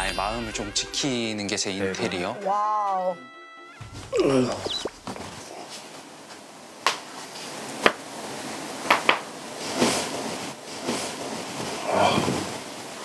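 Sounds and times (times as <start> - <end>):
quilt rustling: 3.8 - 6.1.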